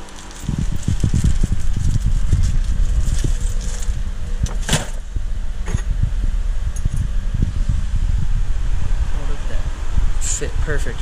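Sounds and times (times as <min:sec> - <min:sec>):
plastic bag crinkling: 0:00.0 - 0:04.0
handling bumps and rumble: 0:00.0 - 0:07.5.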